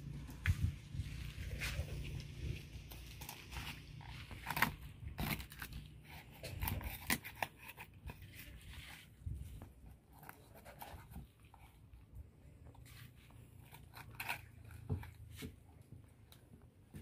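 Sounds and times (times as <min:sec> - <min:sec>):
knife crunching through fish: 0:03.0 - 0:08.0, 0:13.6 - 0:15.1.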